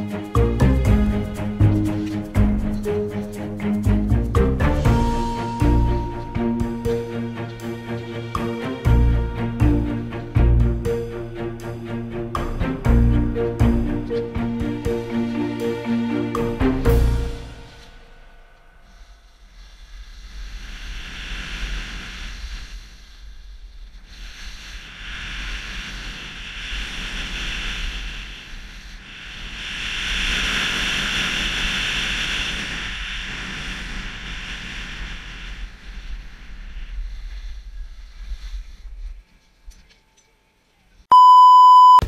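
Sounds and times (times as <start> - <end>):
wind rumbling on microphone: 19.5 - 39.3.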